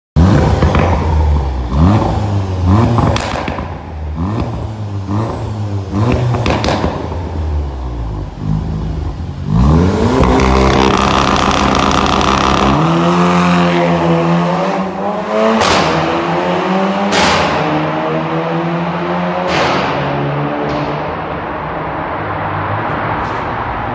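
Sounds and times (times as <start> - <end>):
car engine revving hard: 0.2 - 3.5, 4.2 - 7.1, 8.1 - 20.3
exhaust pops and bangs: 0.3 - 1.2, 2.8 - 4.7, 6.0 - 7.4, 10.1 - 13.0, 15.6 - 16.1, 17.1 - 17.7.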